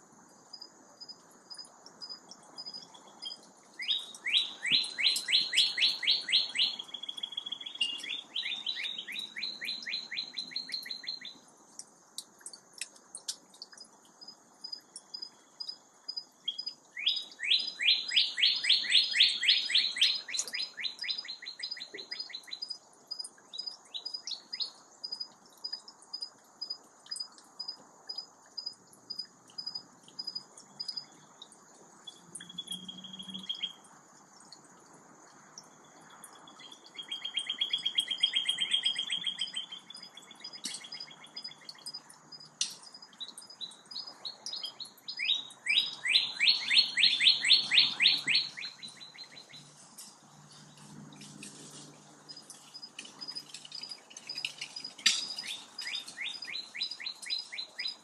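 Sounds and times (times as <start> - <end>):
songbird trilling: 2.6 - 11.4, 16.4 - 22.7, 32.1 - 33.8, 36.5 - 42.0, 42.6 - 49.8, 52.3 - 58.0
bird chips: 3.1 - 11.4, 16.5 - 22.6, 36.5 - 58.0.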